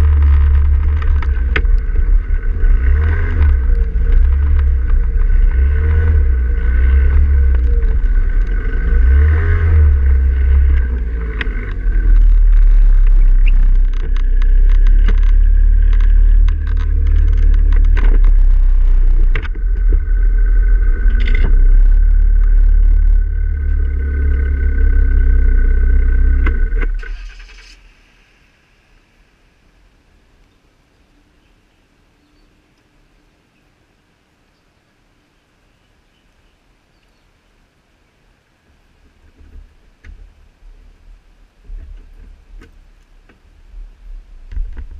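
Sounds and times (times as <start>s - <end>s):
wind buffeting camera: 0.0s - 27.0s, 41.6s - 44.9s
faint steady whine: 0.0s - 44.9s
knocks and bumps: 9.9s - 24.6s.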